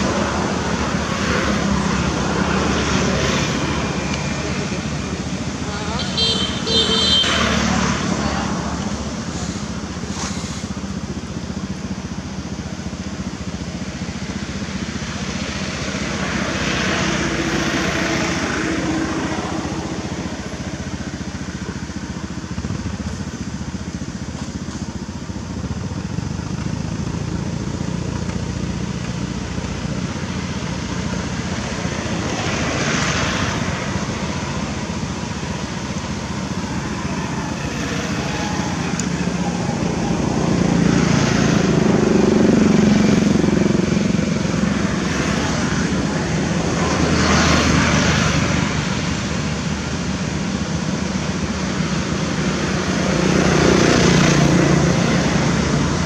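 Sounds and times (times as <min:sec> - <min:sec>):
road traffic: 0:00.0 - 0:56.0
vehicle passing: 0:30.1 - 0:56.0.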